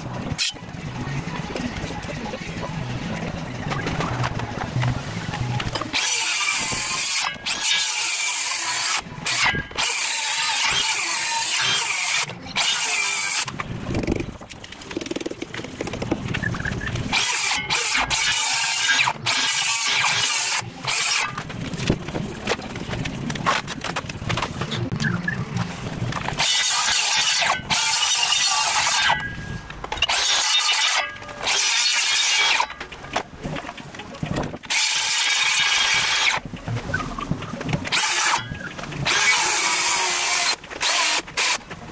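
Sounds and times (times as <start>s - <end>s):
circular saw cutting wood: 5.8s - 13.6s, 17.1s - 21.4s, 26.4s - 29.4s, 30.0s - 32.8s, 34.7s - 36.4s, 37.9s - 41.6s.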